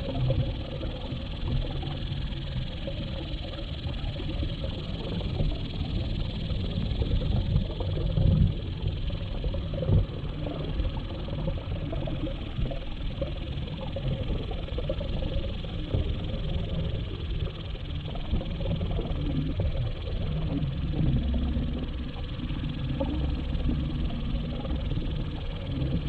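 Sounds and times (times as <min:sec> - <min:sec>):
underwater water rumble: 0:00.0 - 0:26.0.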